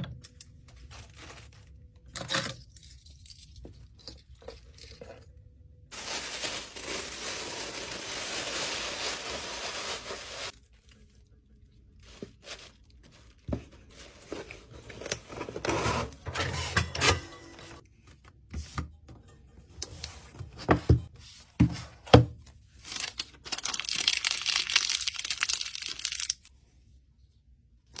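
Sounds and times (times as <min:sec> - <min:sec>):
paper rustling and tearing: 0:00.8 - 0:01.8, 0:05.9 - 0:11.1.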